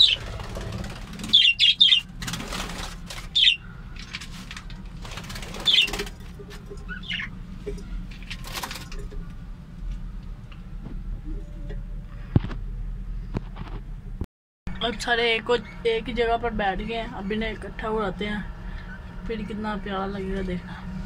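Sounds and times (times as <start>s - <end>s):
birds flapping wings: 0.0s - 6.8s, 8.1s - 9.2s.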